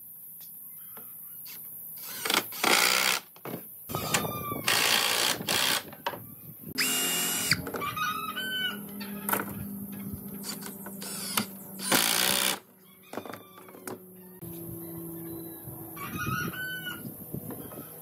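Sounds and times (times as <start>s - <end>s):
cordless drill motor whine: 3.9s - 5.9s, 6.8s - 12.6s.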